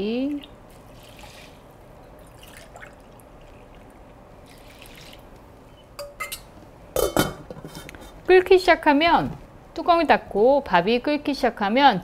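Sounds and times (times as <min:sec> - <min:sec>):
liquid trickling and dripping: 0:00.4 - 0:05.4.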